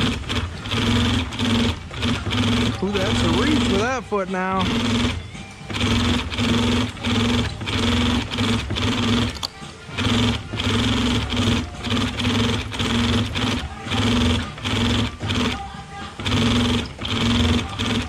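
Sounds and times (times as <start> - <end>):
industrial sewing machine stitching: 0.0 - 18.0
steady motor hum: 0.0 - 18.0.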